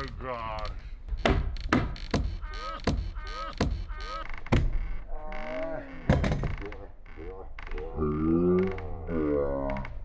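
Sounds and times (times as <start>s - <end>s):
hammer stapler knocks: 1.2s - 3.8s
short rising squeaky tones: 1.2s - 6.1s.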